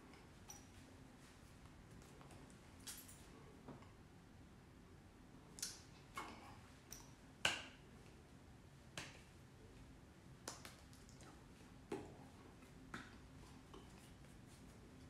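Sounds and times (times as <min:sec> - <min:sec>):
hands clapping and slapping: 0:10.4 - 0:11.2.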